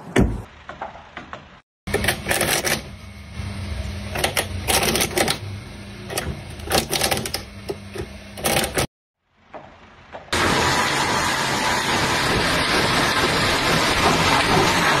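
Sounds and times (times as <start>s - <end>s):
electric motor humming: 1.9s - 8.9s.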